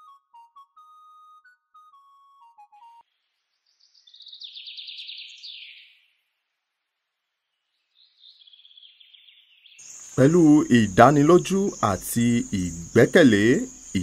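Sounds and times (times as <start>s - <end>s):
high rapid chirping trills: 9.8s - 14.0s.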